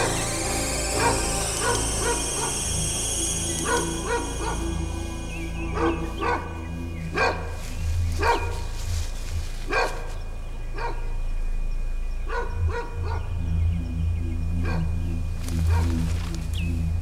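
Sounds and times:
low steady drone: 0.0s - 17.0s
dog barking: 7.2s - 7.5s, 8.2s - 8.6s, 9.7s - 10.1s, 10.8s - 11.1s, 12.3s - 13.2s.

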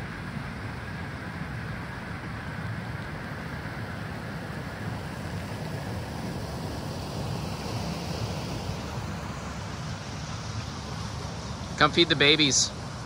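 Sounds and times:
water rushing: 0.0s - 13.0s.

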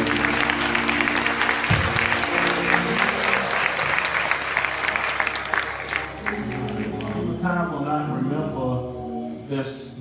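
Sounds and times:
crowd clapping: 0.0s - 7.4s
sustained instrumental chords: 0.0s - 10.0s.

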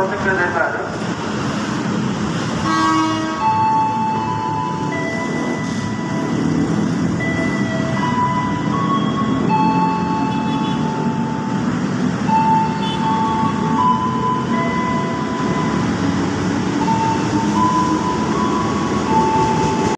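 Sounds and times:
electric train rumble: 0.0s - 10.3s, 10.9s - 19.9s.

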